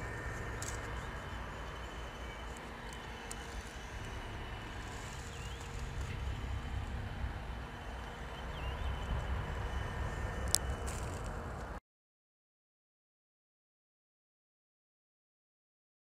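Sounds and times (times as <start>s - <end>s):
faint hums: 0.0s - 11.8s
low outdoor rumble: 0.0s - 11.8s.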